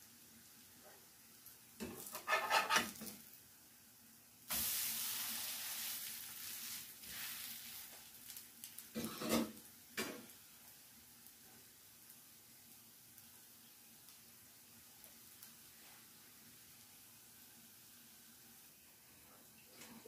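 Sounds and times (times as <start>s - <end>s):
pancake sizzling in oil: 0.0s - 20.0s
spatula scraping frying pan: 1.8s - 3.2s, 9.0s - 10.3s.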